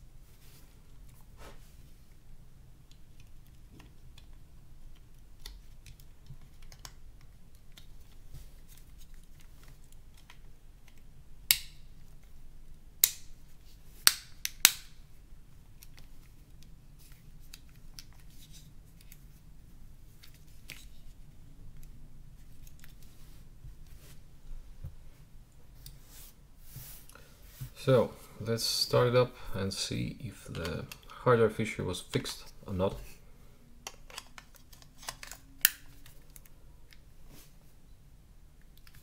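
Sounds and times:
loud sharp plastic snaps: 0:11.5 - 0:11.8, 0:13.0 - 0:13.3, 0:14.0 - 0:15.0
plastic casing clicks and snaps: 0:33.8 - 0:36.5.

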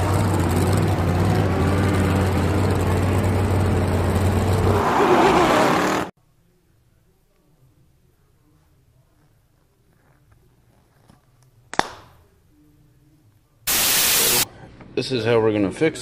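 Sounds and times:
car engine running loud: 0:00.0 - 0:06.1.

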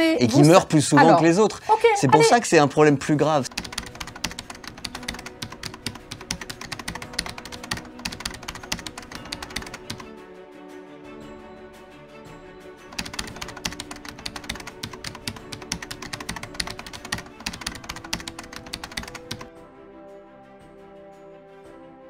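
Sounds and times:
background music with sustained tones: 0:00.0 - 0:22.0
rapid keyboard typing: 0:03.4 - 0:10.1, 0:12.9 - 0:19.5.

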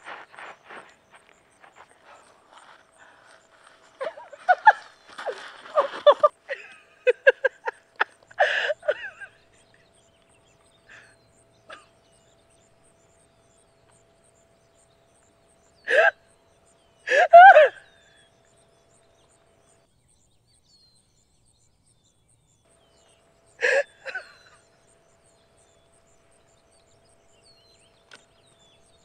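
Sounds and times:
woman gasping and sobbing: 0:08.4 - 0:09.1, 0:15.9 - 0:16.1, 0:17.1 - 0:17.8, 0:23.6 - 0:24.2
woman crying out: 0:15.9 - 0:16.1, 0:17.1 - 0:17.9.

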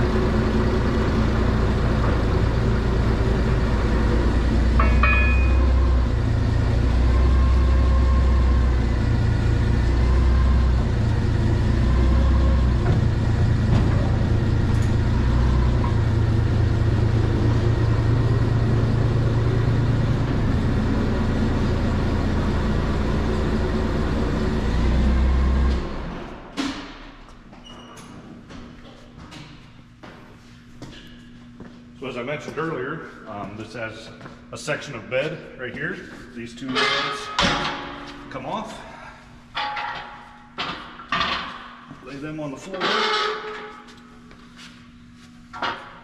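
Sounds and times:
forklift engine rumbling: 0:00.0 - 0:26.5.

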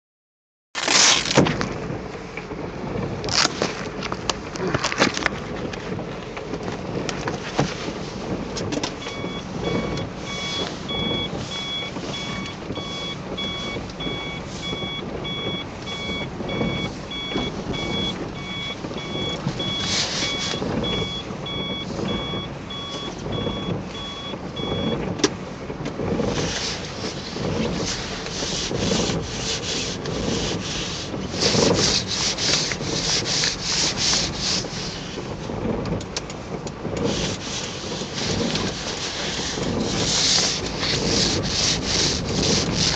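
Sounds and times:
car warning chime beeping: 0:09.0 - 0:25.8
rain suit rustling: 0:26.4 - 0:35.1, 0:37.1 - 0:42.9.

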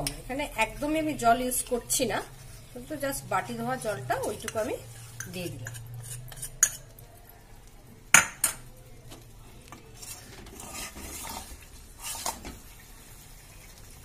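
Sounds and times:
spatula scraping metal pot: 0:02.2 - 0:07.0, 0:09.8 - 0:12.6.

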